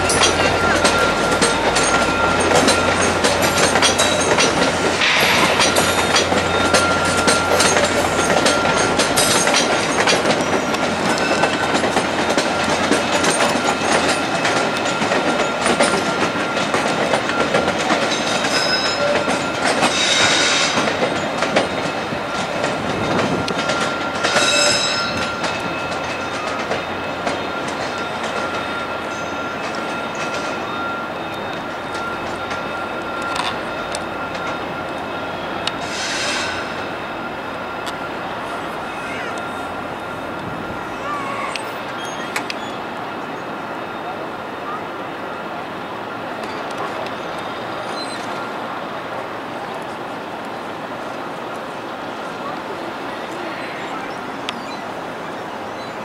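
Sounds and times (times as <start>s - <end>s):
high wheel squeals: 0.0s - 22.3s, 23.6s - 45.2s, 46.3s - 48.6s, 53.0s - 56.0s
train wheels clattering over rail joints: 0.0s - 40.8s.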